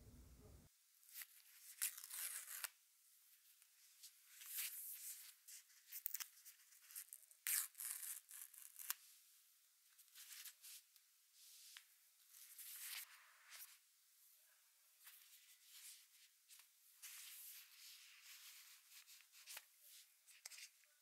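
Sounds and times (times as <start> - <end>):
paper tearing and rustling: 1.1 - 2.7.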